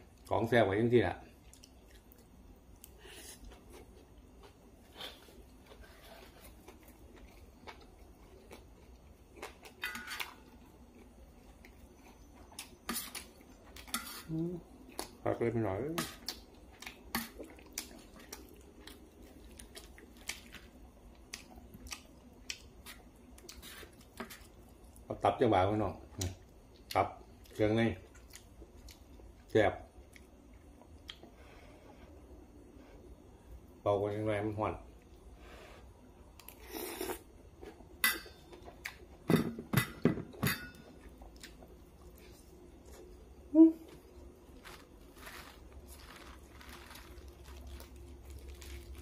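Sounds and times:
person chewing food: 0:01.4 - 0:15.2, 0:16.2 - 0:25.0, 0:26.2 - 0:31.4, 0:40.9 - 0:49.0
person slurping: 0:36.5 - 0:37.3
tableware clinking: 0:39.3 - 0:41.0.

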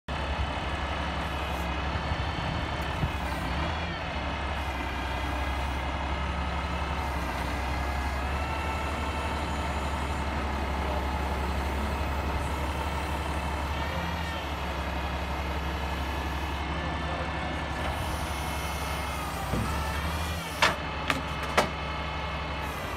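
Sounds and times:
diesel truck engine running: 0:00.1 - 0:22.9
hydraulic whine: 0:17.6 - 0:21.7.

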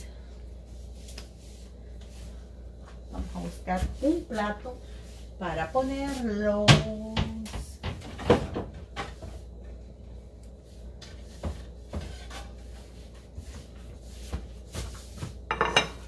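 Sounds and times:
plate clattering: 0:15.5 - 0:16.0.

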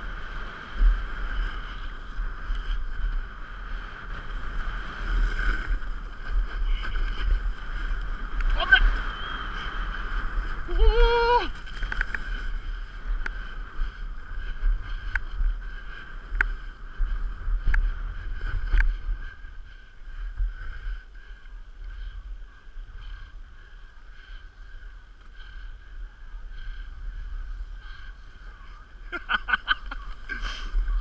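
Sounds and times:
skis sliding over snow: 0:00.0 - 0:31.0
wind on camera: 0:00.0 - 0:31.0.

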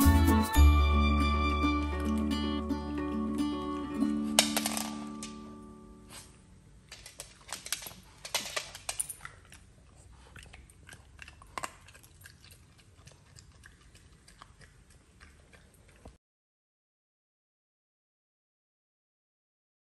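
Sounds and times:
dog chewing and crunching: 0:06.1 - 0:16.2.

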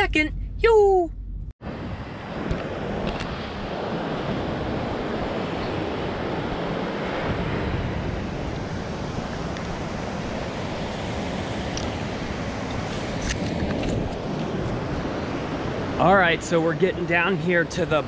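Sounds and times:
wind on microphone: 0:01.6 - 0:16.0
ocean surf washing on beach: 0:01.7 - 0:18.0.

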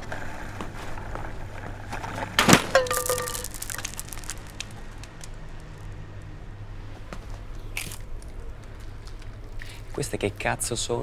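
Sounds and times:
box clattering on pavement: 0:02.4 - 0:04.8
beads scattering and bouncing: 0:02.6 - 0:05.0.

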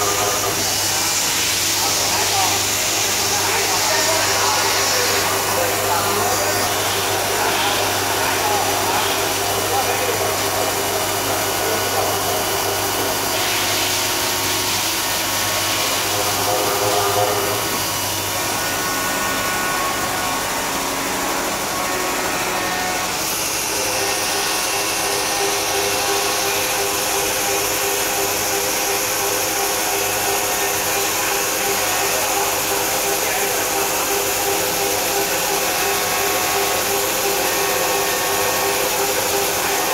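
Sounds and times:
coolant spray hissing: 0:00.0 - 0:18.0
milling spindle whine: 0:00.0 - 0:39.9.

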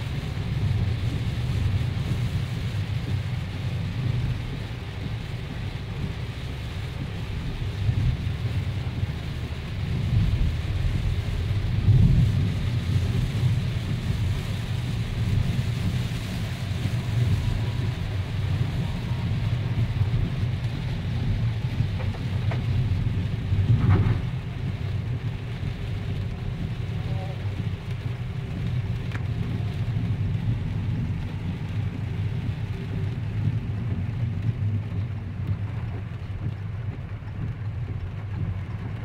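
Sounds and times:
heavy rain on car roof: 0:00.0 - 0:39.0
tyres rumbling on wet road: 0:00.0 - 0:39.0.

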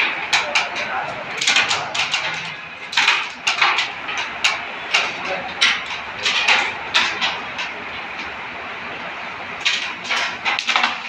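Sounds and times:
sharp clicks and clacks: 0:00.0 - 0:08.4.

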